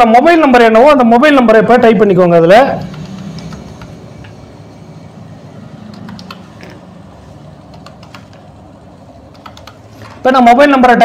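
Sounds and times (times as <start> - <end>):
mouse and keyboard clicks: 2.8 - 4.4, 5.9 - 6.8, 7.7 - 8.5, 9.3 - 10.2.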